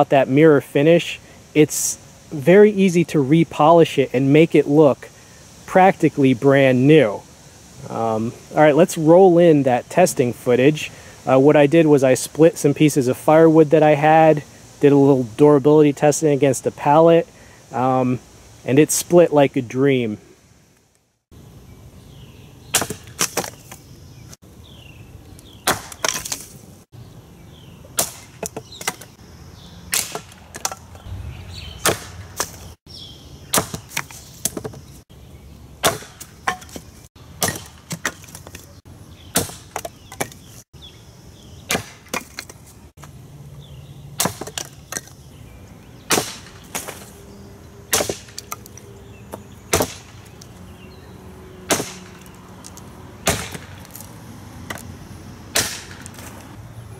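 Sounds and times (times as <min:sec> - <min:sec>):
hatchet chopping wood: 0:22.7 - 0:23.8, 0:25.6 - 0:26.5, 0:27.9 - 0:29.2, 0:29.9 - 0:31.0, 0:31.8 - 0:32.7, 0:33.5 - 0:34.8, 0:35.8 - 0:38.6, 0:39.3 - 0:40.4, 0:41.7 - 0:42.6, 0:44.2 - 0:45.1, 0:46.1 - 0:47.1, 0:47.9 - 0:50.4, 0:51.7 - 0:54.1, 0:54.7 - 0:54.9, 0:55.5 - 0:56.3.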